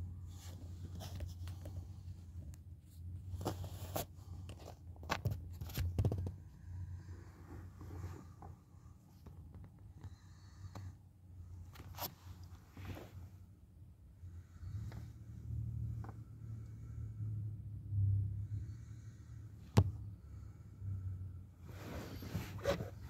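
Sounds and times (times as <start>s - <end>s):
steady low hum: 5.9s - 23.0s.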